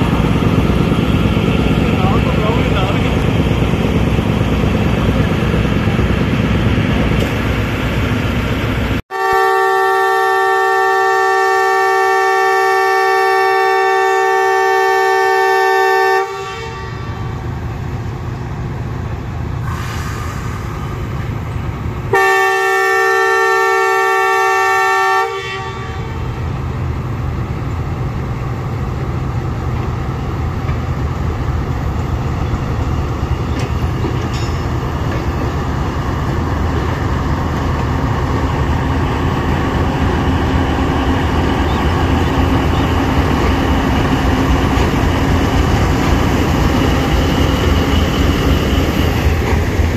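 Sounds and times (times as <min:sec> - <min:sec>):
locomotive engine and wheels rumbling: 0:00.0 - 0:49.9
locomotive air horn: 0:09.1 - 0:17.3, 0:22.1 - 0:26.4.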